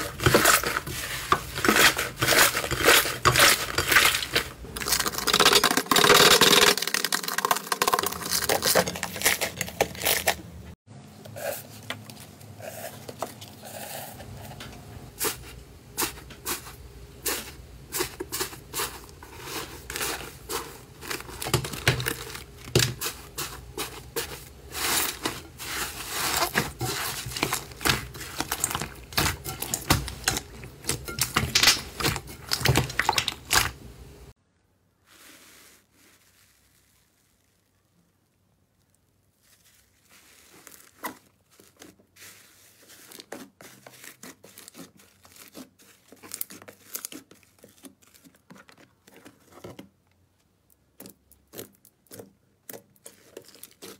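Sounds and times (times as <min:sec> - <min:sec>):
slime crackling and popping: 0:02.1 - 0:10.4.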